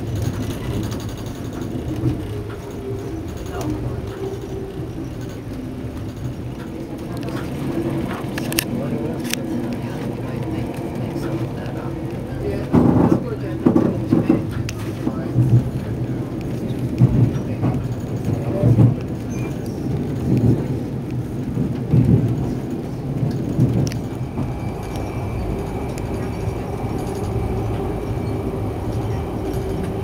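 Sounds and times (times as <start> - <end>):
train rumbling: 0.0 - 30.0.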